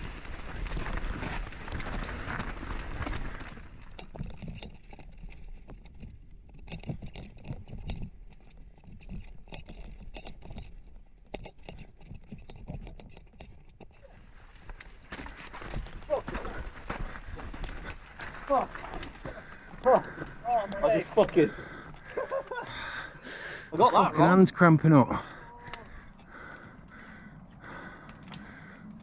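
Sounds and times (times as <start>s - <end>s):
helmet rattling: 0.0s - 22.6s
bike clattering over rough trail: 0.0s - 29.0s.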